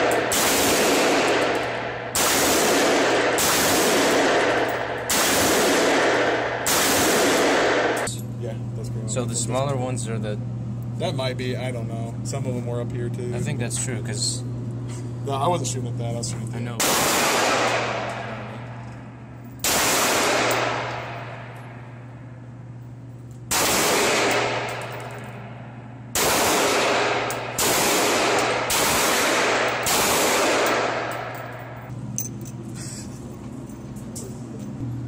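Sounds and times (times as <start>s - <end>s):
handgun shots with echo: 0.0s - 8.1s, 19.6s - 21.5s, 23.5s - 25.1s, 26.2s - 31.7s.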